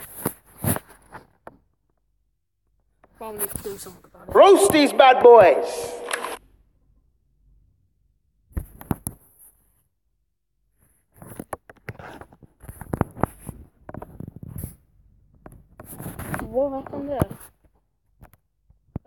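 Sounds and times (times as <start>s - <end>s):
sharp clicks: 5.9s - 6.4s.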